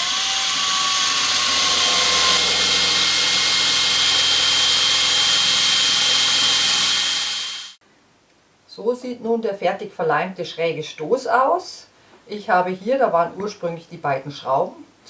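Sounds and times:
cordless drill boring wood: 0.0s - 7.8s.

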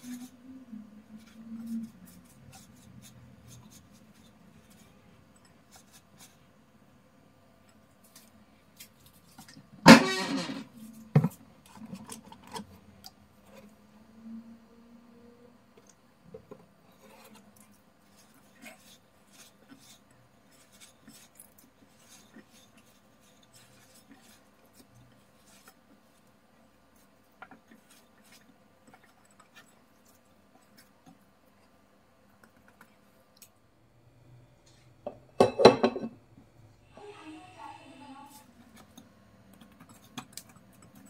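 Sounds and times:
hands kneading dough: 0.0s - 6.7s, 7.7s - 9.8s, 15.8s - 33.6s, 38.3s - 41.0s.

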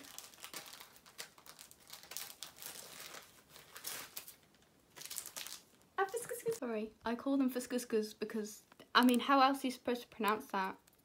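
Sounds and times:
plastic packaging crinkling: 0.0s - 6.6s.

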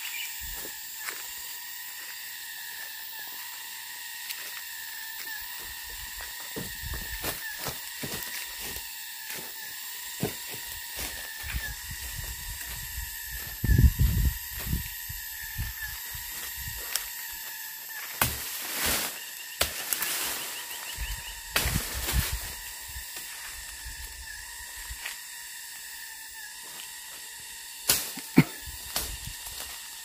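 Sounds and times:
crunching through dry leaves: 0.0s - 25.4s
insects droning: 0.0s - 30.0s.

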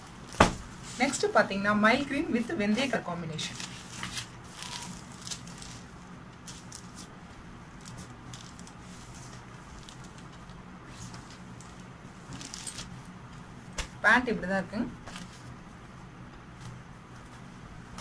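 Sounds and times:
cloth rustling: 0.0s - 14.0s
steady low hum: 0.0s - 18.0s.

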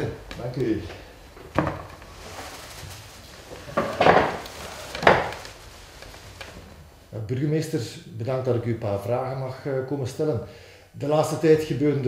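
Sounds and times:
wooden chairs scraping: 0.0s - 7.2s.

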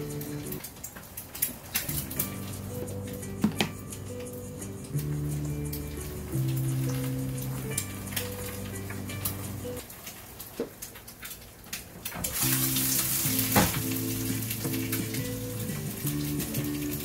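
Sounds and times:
crackling hiss: 0.0s - 17.0s
background music: 1.9s - 9.8s, 12.4s - 17.0s.

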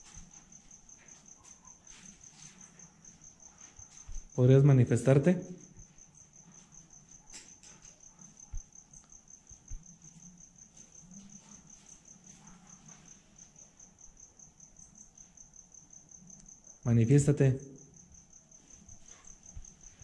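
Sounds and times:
faint cricket chirping: 0.0s - 20.0s.

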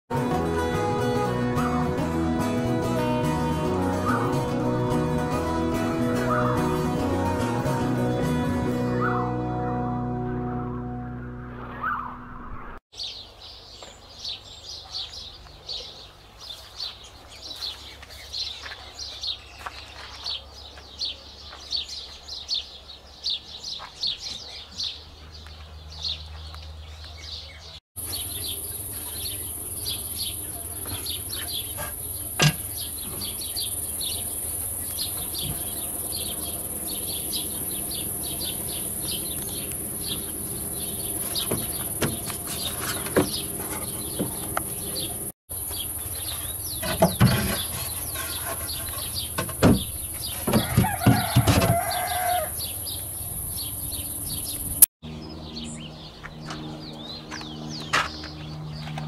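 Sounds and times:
small birds chirping: 13.0s - 59.0s.

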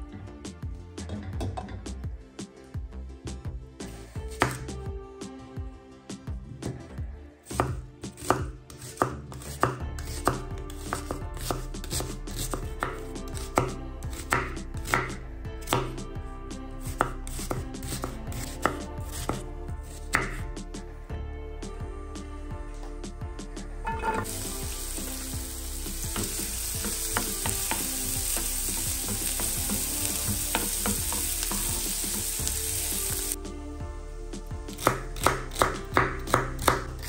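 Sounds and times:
knife chopping on wooden board: 7.5s - 16.0s, 16.9s - 20.4s, 25.9s - 32.6s, 34.7s - 37.0s.

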